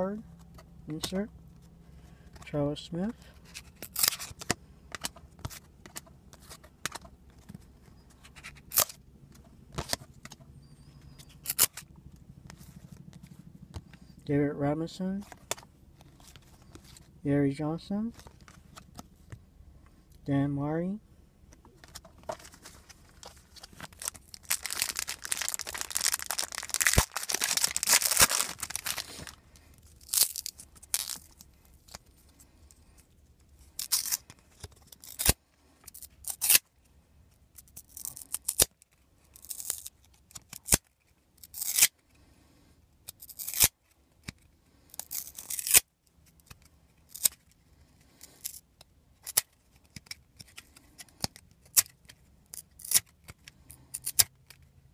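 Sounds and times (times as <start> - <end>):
wrapper torn open crinkling: 3.6 - 4.5, 21.9 - 32.1, 33.7 - 36.6, 37.5 - 41.9, 43.1 - 43.8, 44.9 - 47.5, 51.2 - 54.3.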